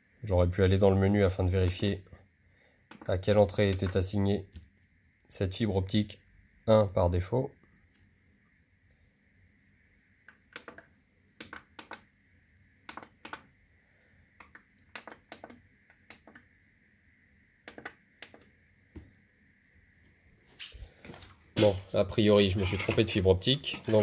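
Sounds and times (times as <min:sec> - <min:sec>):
selector buttons clicking: 0:11.4 - 0:12.1.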